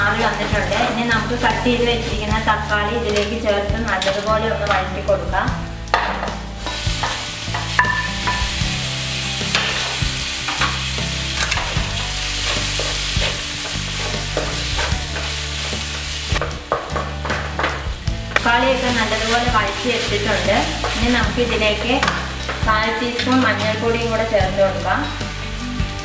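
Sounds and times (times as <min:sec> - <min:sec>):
tomatoes sizzling in hot oil: 0:00.0 - 0:26.0
wooden spatula scraping a pan: 0:06.0 - 0:17.8.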